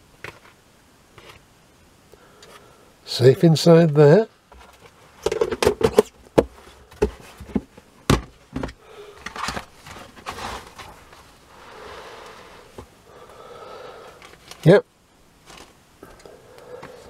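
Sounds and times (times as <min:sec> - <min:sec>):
plastic tubs rustling and scraping: 0:00.2 - 0:01.5, 0:03.9 - 0:12.9, 0:15.4 - 0:15.8.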